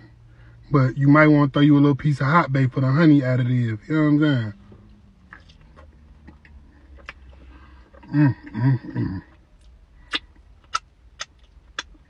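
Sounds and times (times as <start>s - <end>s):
man chewing crunchy food: 5.3s - 12.0s
man humming mmm: 8.0s - 9.3s
wet mouth clicks: 9.6s - 12.0s.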